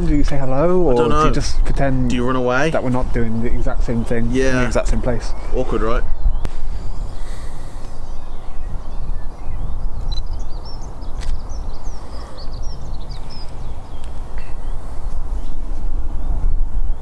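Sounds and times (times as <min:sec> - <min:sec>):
low wind rumble on microphone: 0:00.0 - 0:17.0
small birds chirping: 0:00.0 - 0:17.0
sharp clicks: 0:11.2 - 0:11.4.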